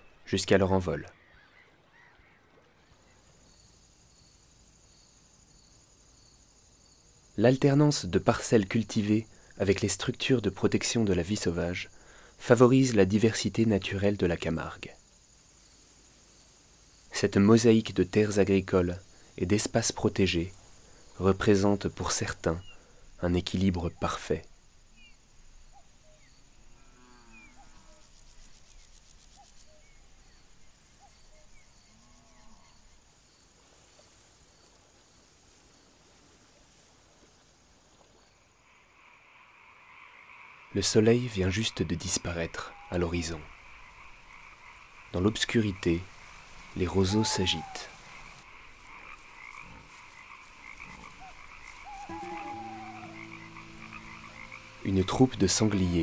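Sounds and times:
frogs trilling: 13.8s - 33.5s, 38.2s - 56.0s
low drawn-out animal calls: 42.4s - 56.0s
high repeating insect note: 45.2s - 56.0s
short bird calls: 46.6s - 48.4s, 50.5s - 55.1s
high buzzing chirr: 51.6s - 56.0s
low sustained tones: 51.8s - 56.0s.

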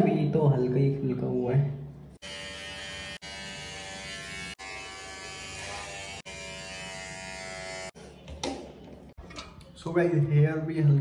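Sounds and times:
electric hair trimmer buzzing: 2.2s - 8.0s.

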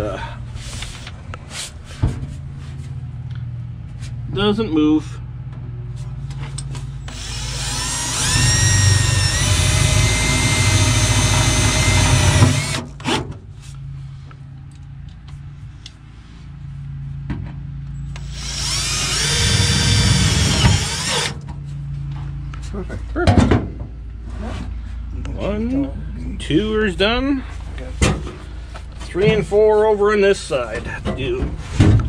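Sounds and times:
drill clicks: 7.1s - 12.8s, 18.2s - 21.4s
cordless drill motor whining: 7.1s - 13.1s, 18.1s - 21.4s.

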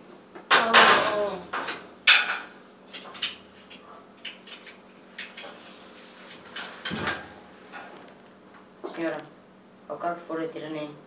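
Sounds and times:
person speaking: 8.8s - 9.4s.

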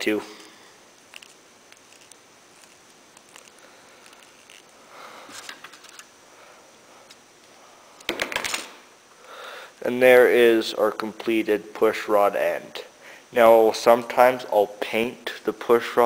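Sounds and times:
handling electrical tape: 1.0s - 6.1s.

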